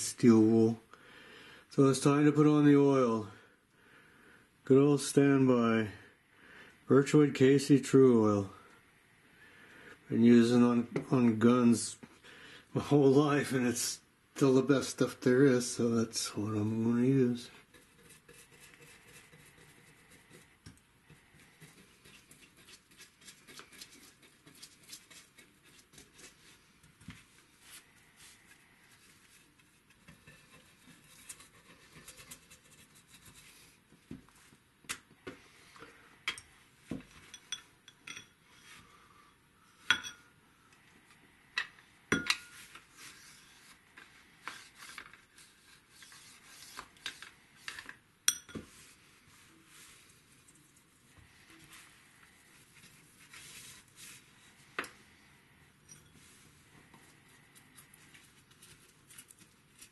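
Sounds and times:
brush clinking against ceramic bowl: 37.2s - 38.4s, 39.8s - 40.3s, 48.3s - 48.8s, 55.8s - 56.4s.

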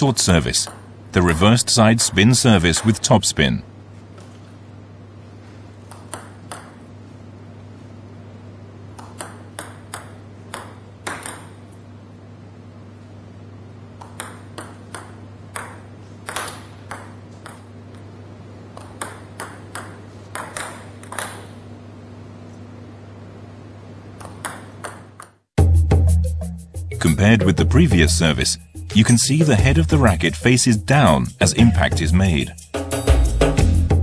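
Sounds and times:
table tennis ball ticking: 5.9s - 6.8s, 9.0s - 11.6s, 14.0s - 18.0s, 18.8s - 21.5s, 24.2s - 25.4s.

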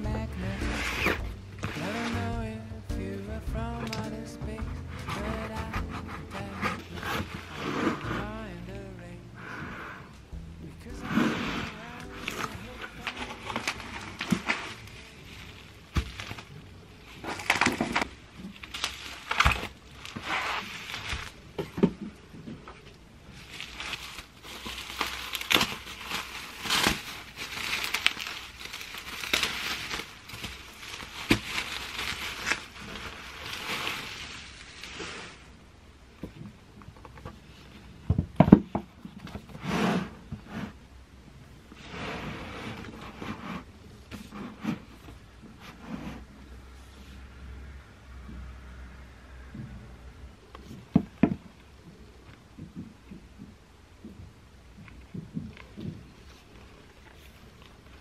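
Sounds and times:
bubble wrap crinkling: 0.0s - 8.9s, 10.8s - 36.4s, 54.9s - 58.0s.

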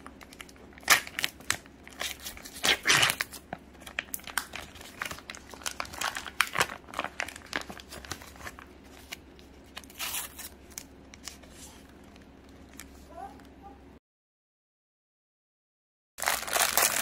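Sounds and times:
plastic wrapper crinkling: 0.0s - 13.0s, 16.2s - 17.0s
foil pouch tearing: 0.7s - 10.6s, 16.2s - 17.0s.

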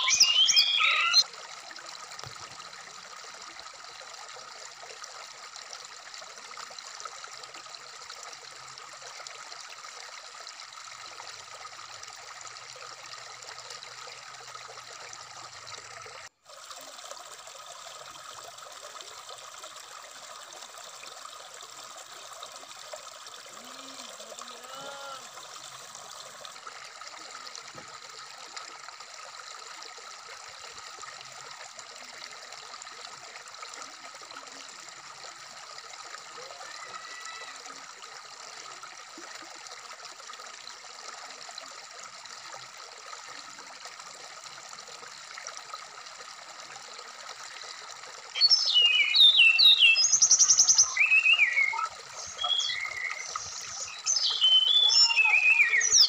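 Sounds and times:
stream babbling over rocks: 0.0s - 1.3s, 39.9s - 56.0s.

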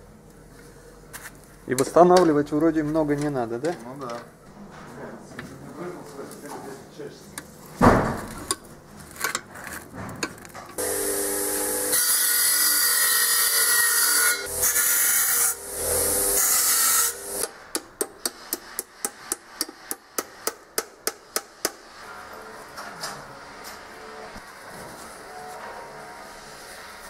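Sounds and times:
power tool humming and hissing: 10.8s - 17.5s.

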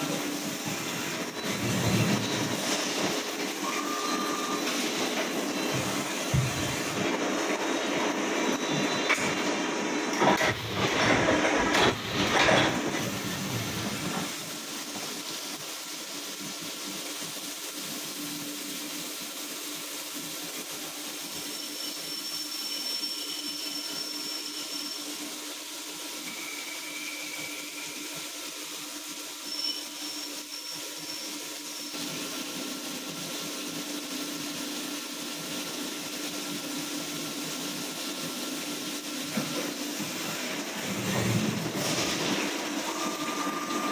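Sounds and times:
coolant spray hiss: 12.6s - 43.9s.

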